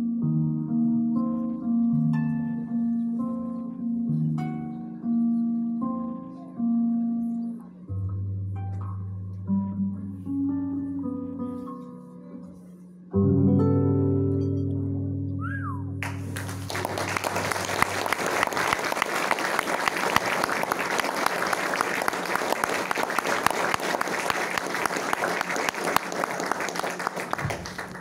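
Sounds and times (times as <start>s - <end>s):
audience applause: 16.0s - 28.0s.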